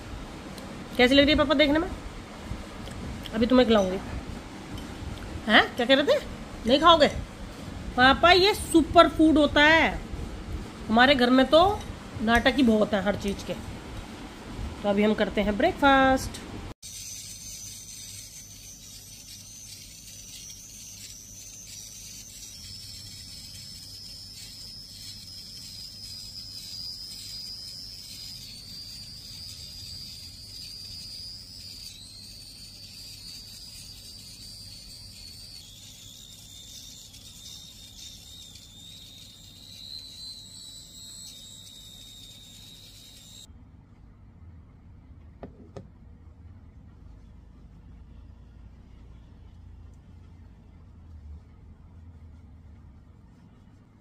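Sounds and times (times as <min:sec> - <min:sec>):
facial hair remover whining: 0:16.8 - 0:43.5.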